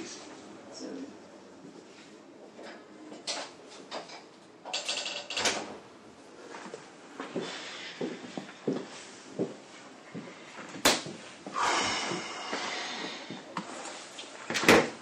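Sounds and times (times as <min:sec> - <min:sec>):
soft footsteps on office floor: 0:00.2 - 0:02.9, 0:06.4 - 0:14.5
short hiss: 0:11.6 - 0:13.3.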